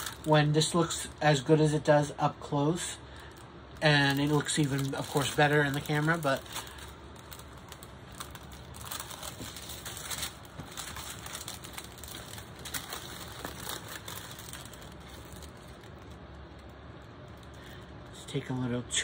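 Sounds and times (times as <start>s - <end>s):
plastic film crinkling: 0.0s - 1.5s, 3.0s - 18.2s.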